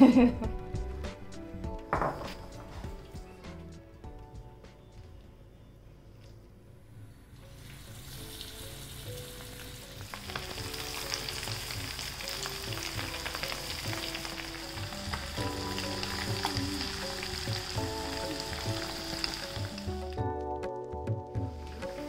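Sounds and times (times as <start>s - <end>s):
background music: 0.0s - 22.0s
chicken deep-frying in oil: 7.3s - 20.2s.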